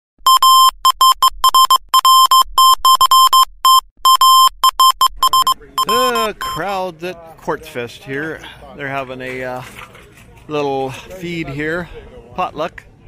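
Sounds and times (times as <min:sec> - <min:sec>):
electronic beeping pulses: 0:00.2 - 0:06.6.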